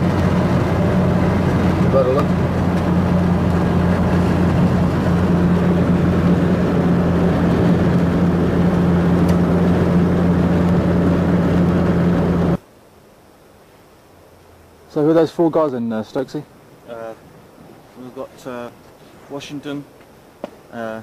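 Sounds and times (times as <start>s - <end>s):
road and engine noise in cabin: 0.0s - 12.6s.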